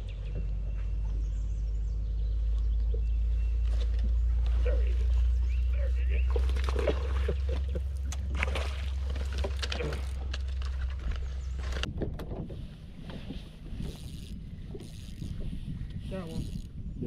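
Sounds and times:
wind rumbling on microphone: 0:00.0 - 0:17.0
water splashing: 0:06.1 - 0:11.8.

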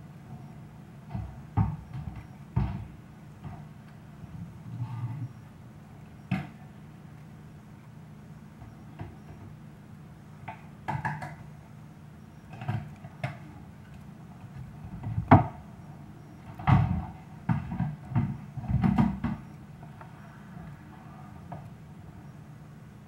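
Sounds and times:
low steady hum: 0:00.0 - 0:23.0
knocks and dull thumps: 0:01.0 - 0:04.5, 0:06.3 - 0:06.6, 0:08.6 - 0:09.6, 0:10.4 - 0:11.5, 0:12.5 - 0:15.7, 0:16.4 - 0:20.5.

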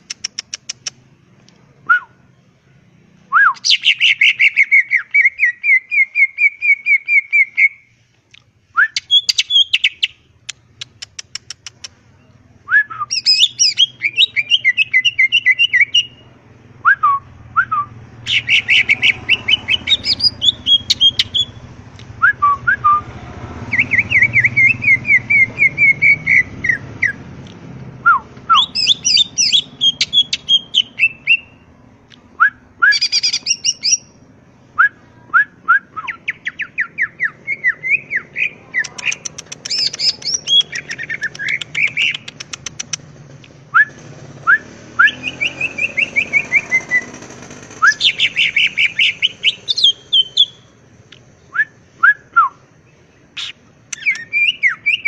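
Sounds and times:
bird singing chirps and trills: 0:02.2 - 0:07.9, 0:08.8 - 0:11.5, 0:12.1 - 0:16.3, 0:18.1 - 0:21.7, 0:23.6 - 0:27.3, 0:28.5 - 0:31.7, 0:32.9 - 0:34.2, 0:36.0 - 0:43.0, 0:45.0 - 0:50.7, 0:52.2 - 0:55.0.

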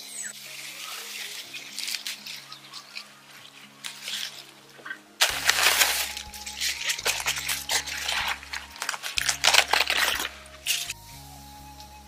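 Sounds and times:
plant leaves rustling: 0:00.0 - 0:11.0
background music with bass line: 0:03.9 - 0:12.0.

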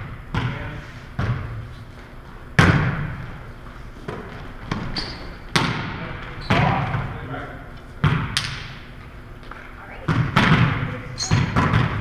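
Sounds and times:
volleyball hits echoing: 0:00.0 - 0:01.6, 0:02.6 - 0:03.3, 0:04.1 - 0:07.3, 0:08.0 - 0:08.9, 0:10.1 - 0:12.0.

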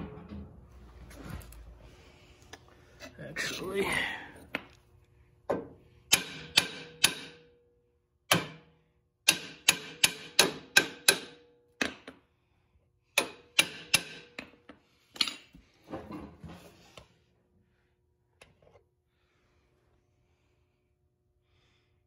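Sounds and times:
hammer striking steel: 0:06.1 - 0:07.5, 0:08.3 - 0:08.7, 0:09.3 - 0:12.0, 0:13.2 - 0:14.5.

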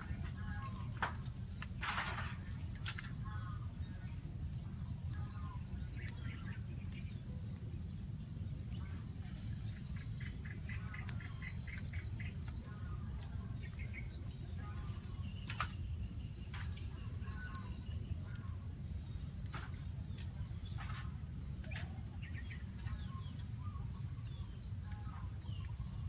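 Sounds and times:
birds chirping: 0:00.0 - 0:26.0.

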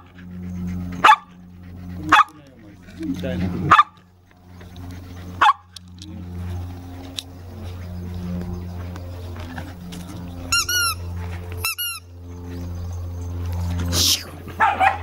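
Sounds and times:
squeaky dog toy squeaking: 0:10.5 - 0:11.0, 0:11.6 - 0:12.0.

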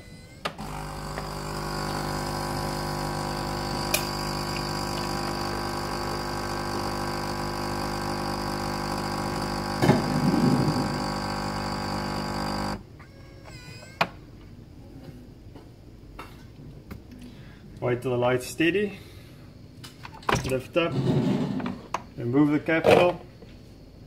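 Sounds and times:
coffee machine pump humming: 0:00.4 - 0:12.8.

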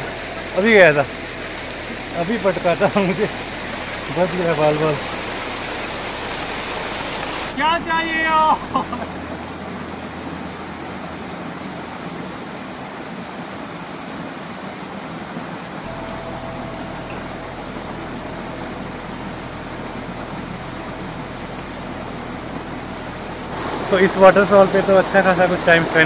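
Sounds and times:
waterfall over rocks: 0:00.0 - 0:26.0.

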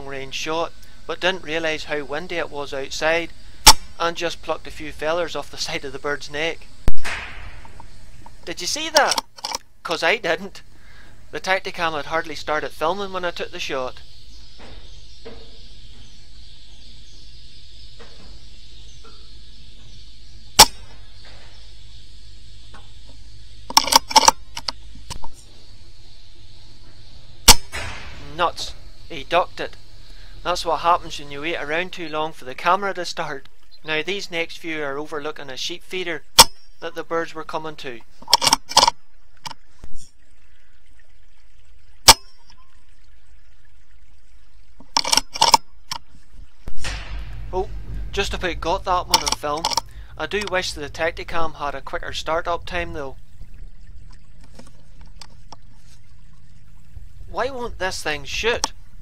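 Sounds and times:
steady background hiss: 0:00.0 - 0:59.0
air rifle shot: 0:06.9 - 0:07.8, 0:27.4 - 0:28.4, 0:46.7 - 0:49.3.

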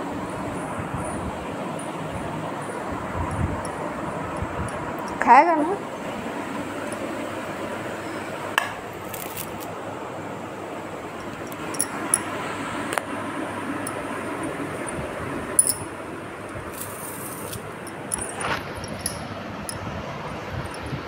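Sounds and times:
sharp metallic clinks: 0:11.2 - 0:12.3, 0:15.6 - 0:15.9, 0:17.8 - 0:19.9.

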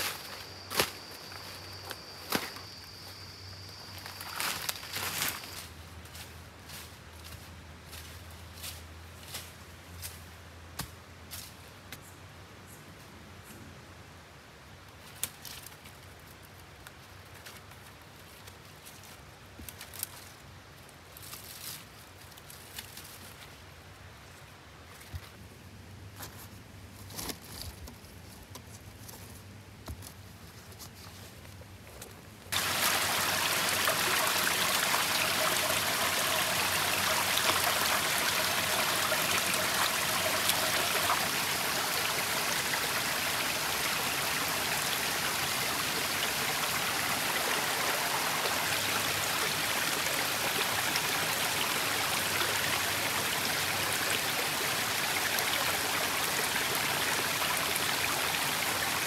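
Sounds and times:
stream rushing over rocks: 0:32.5 - 0:59.0.

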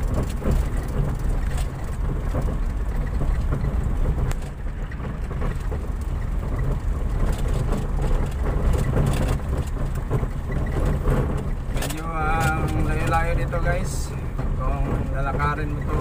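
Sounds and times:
knocks and rattles: 0:00.0 - 0:16.0
vehicle engine and road rumble: 0:00.0 - 0:16.0.

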